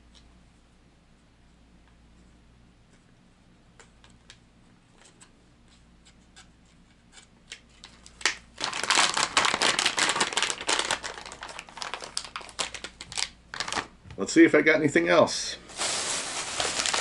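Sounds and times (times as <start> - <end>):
plastic bag crinkling: 7.8 - 14.0, 15.7 - 17.0.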